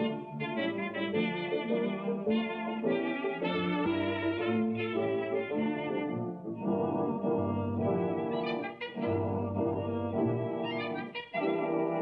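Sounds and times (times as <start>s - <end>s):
orchestral held chords: 0.0s - 12.0s.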